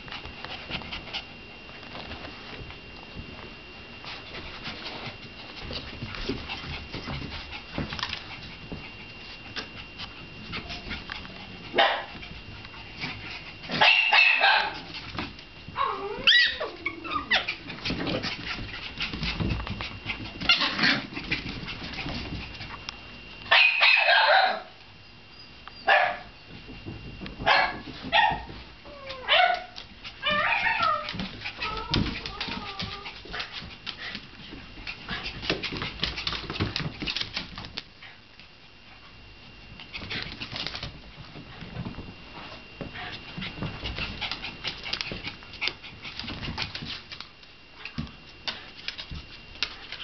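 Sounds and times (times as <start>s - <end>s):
puppies barking and yipping: 13.6s - 14.8s, 15.8s - 17.9s, 27.5s - 33.1s.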